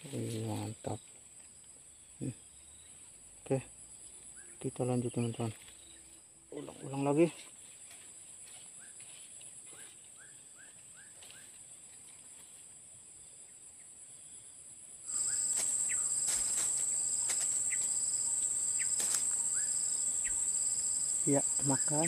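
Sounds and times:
soft pulsing insect call: 0.0 - 22.0
high-pitched insect drone: 15.1 - 22.0
faint rising chirps: 16.8 - 22.0.

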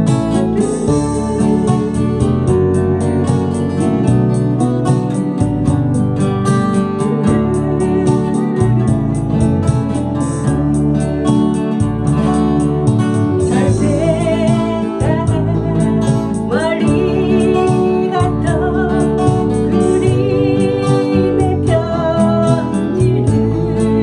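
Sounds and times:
woman singing folk ballad: 0.0 - 4.1, 6.5 - 10.0, 13.4 - 24.0
acoustic guitar strumming: 0.0 - 24.0.

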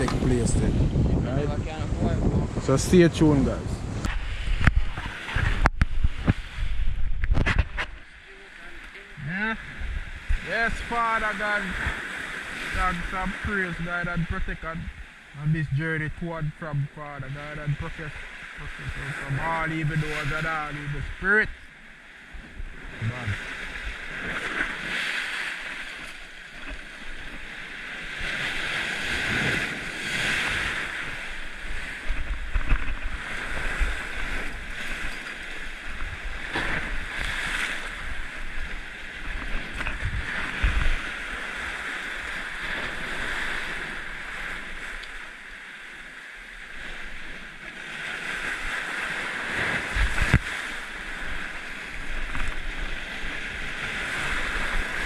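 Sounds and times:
surf breaking on rocks: 3.7 - 21.6, 22.8 - 45.5.

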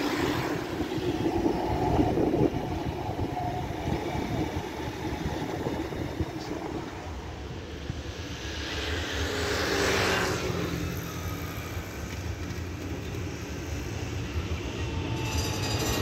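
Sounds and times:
tram rolling on rails: 0.0 - 16.0.

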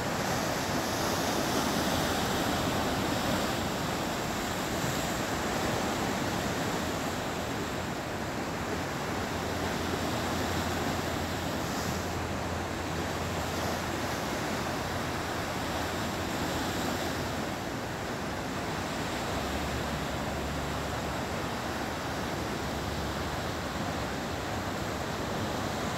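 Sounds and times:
ocean surf: 0.0 - 25.9.

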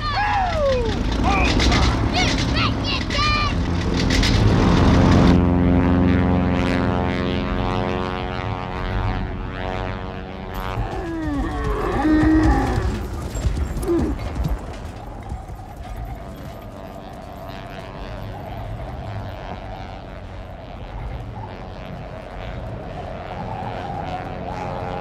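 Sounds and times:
camels bellowing: 0.0 - 5.2, 10.6 - 25.0
propeller plane engine droning: 0.0 - 25.0.

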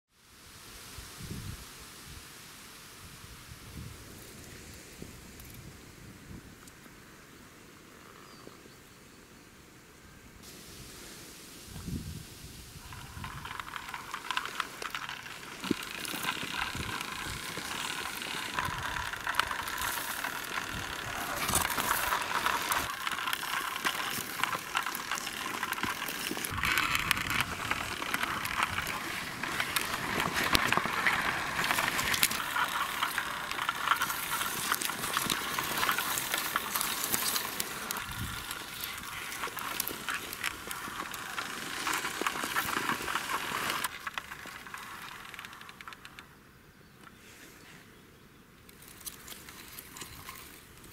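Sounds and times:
toy car wheels crunching on grit: 11.8 - 46.4, 48.7 - 50.9.

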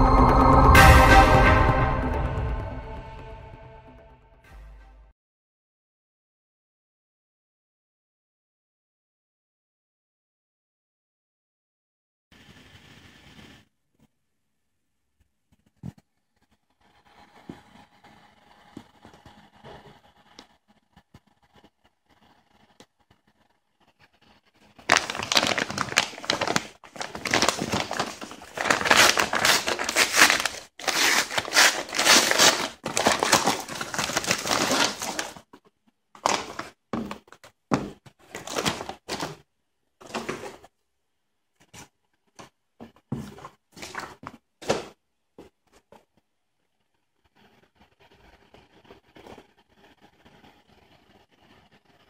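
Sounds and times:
envelope crinkling and tearing: 24.8 - 35.5, 36.2 - 37.4, 38.2 - 39.4
box rustling and bumping: 24.9 - 35.4, 36.2 - 39.4.

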